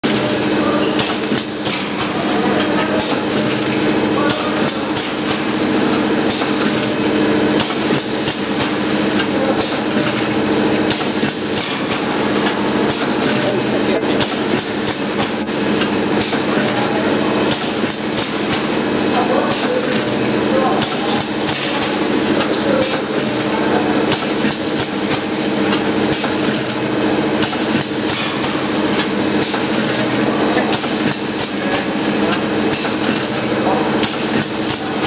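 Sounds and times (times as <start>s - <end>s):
machine sharp clacks: 0.0s - 35.0s.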